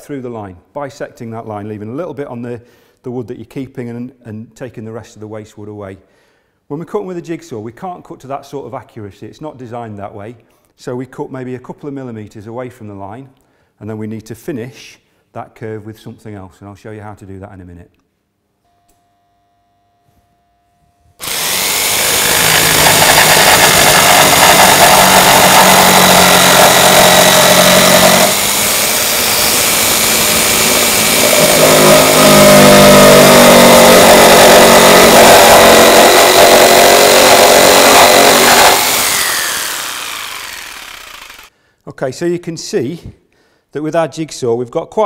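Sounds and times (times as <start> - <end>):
electric jigsaw cutting wood: 21.2 - 41.5.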